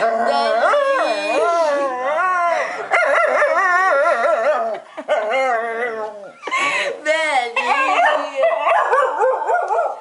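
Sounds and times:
dog howling: 0:00.0 - 0:06.3.

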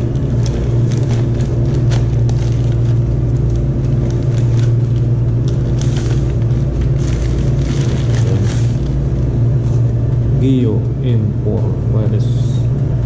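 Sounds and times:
plastic bag crinkling: 0:00.0 - 0:09.2
loud low hum: 0:00.0 - 0:13.0.

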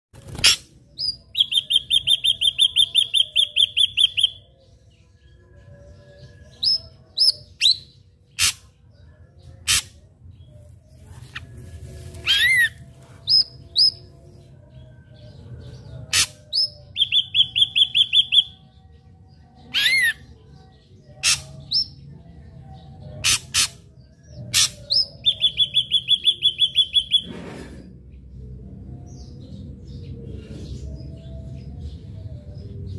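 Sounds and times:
bird singing whistled notes: 0:01.0 - 0:08.5, 0:15.4 - 0:19.0, 0:19.6 - 0:20.3, 0:24.4 - 0:27.3.

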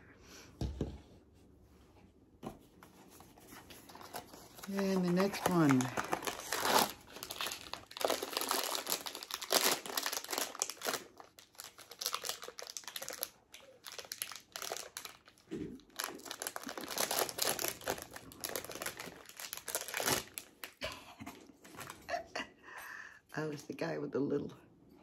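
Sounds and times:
packaging crinkling and rustling: 0:03.1 - 0:20.8.

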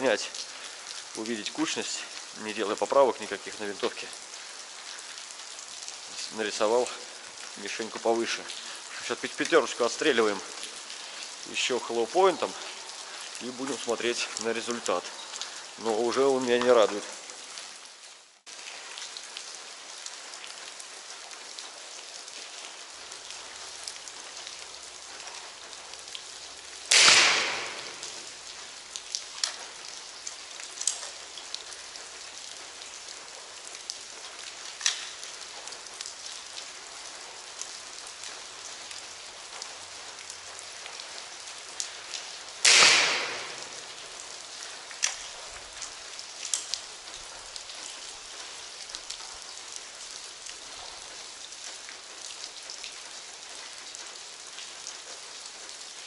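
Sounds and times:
air rifle shots echoing: 0:26.9 - 0:28.2, 0:42.6 - 0:43.9.

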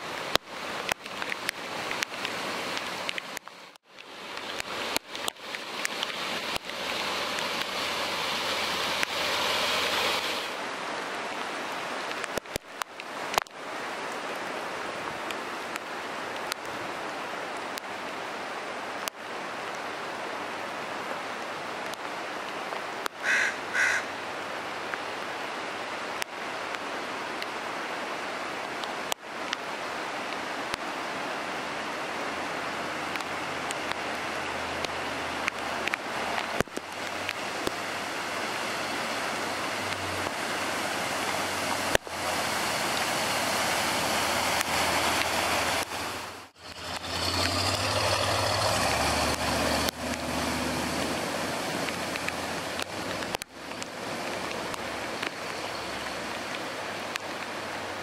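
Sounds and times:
tyres splashing through water: 0:00.0 - 0:20.0, 0:20.8 - 0:58.0
engine hum: 0:33.1 - 0:55.4.

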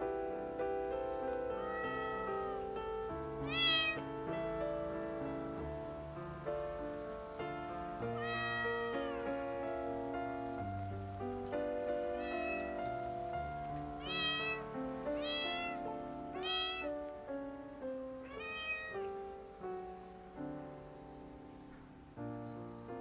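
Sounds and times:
background music with held notes: 0:00.0 - 0:23.0
kitten meowing: 0:01.4 - 0:02.8, 0:03.4 - 0:04.1, 0:08.1 - 0:09.5, 0:12.0 - 0:17.1, 0:18.2 - 0:19.2.

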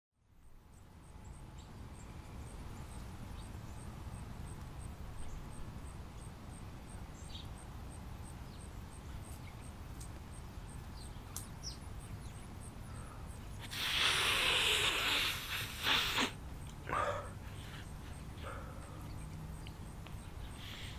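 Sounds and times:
faint bird chirps: 0:05.2 - 0:20.9
loud rushing hiss: 0:13.6 - 0:16.4.

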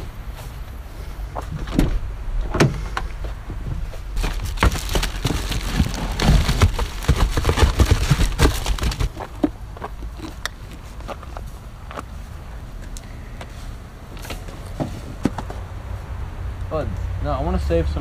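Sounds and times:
fireworks rummaged in cardboard box: 0:04.2 - 0:09.5.

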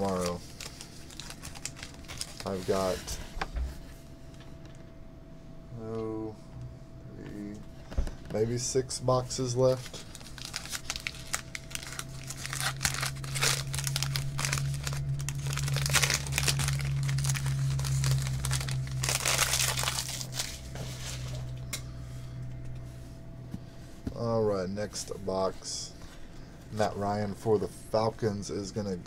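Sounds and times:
foil wrapper crinkling and tearing: 0:00.0 - 0:03.2, 0:09.4 - 0:21.6
steady low hum: 0:00.0 - 0:29.0.

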